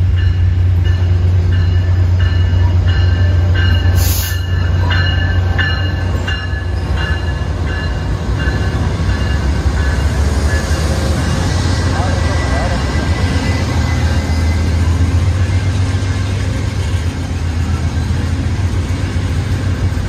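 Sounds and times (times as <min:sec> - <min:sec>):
diesel locomotive rumble: 0:00.0 - 0:20.0
air hiss: 0:04.0 - 0:04.5.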